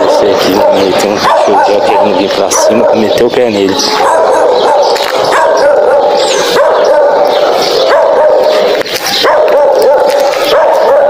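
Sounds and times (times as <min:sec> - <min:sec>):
dog barking and yelping: 0:00.0 - 0:11.0.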